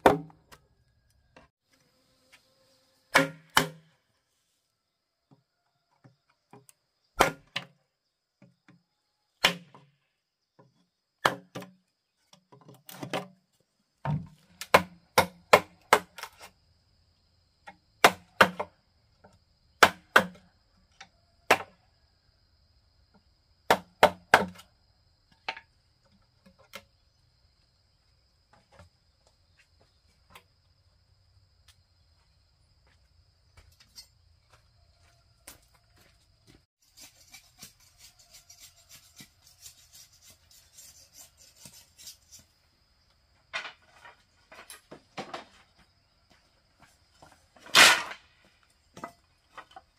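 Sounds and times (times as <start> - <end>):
tool striking bamboo: 0.0 - 0.6, 3.1 - 4.0, 7.2 - 7.8, 9.4 - 9.9, 11.2 - 11.8, 14.1 - 16.5, 18.0 - 18.7, 19.8 - 20.5, 23.7 - 24.6, 47.6 - 48.3.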